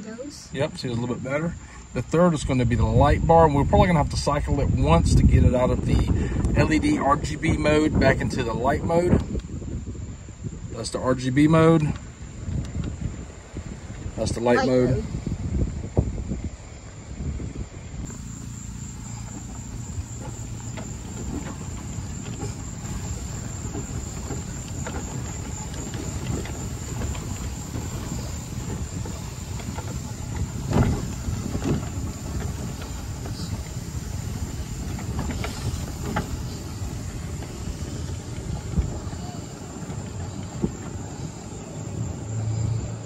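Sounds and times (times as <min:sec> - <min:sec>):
golf cart rumbling: 0:00.0 - 0:43.0
rattles and knocks: 0:18.1 - 0:41.3.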